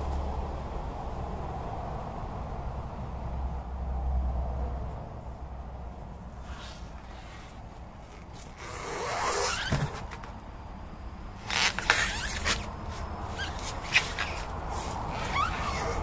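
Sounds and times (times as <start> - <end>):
rubber squeaking against rubber: 6.4 - 10.4, 11.4 - 16.0.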